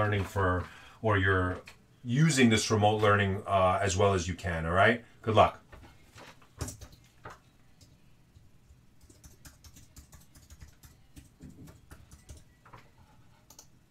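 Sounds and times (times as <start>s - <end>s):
typing on computer keyboard: 6.6s - 8.0s, 9.0s - 13.8s.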